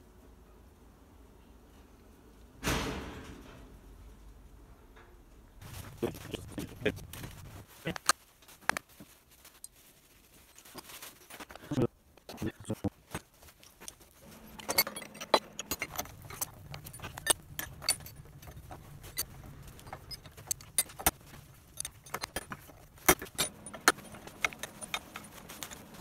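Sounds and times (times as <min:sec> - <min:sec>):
metal engine parts clinking: 0:13.4 - 0:26.0.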